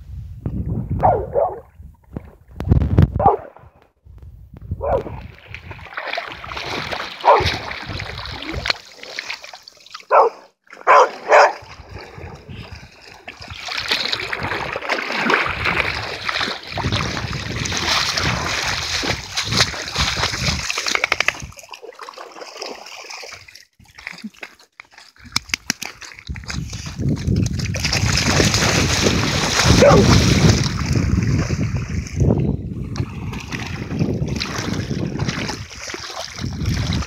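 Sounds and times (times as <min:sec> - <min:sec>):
water splashing: 0:04.8 - 0:37.0.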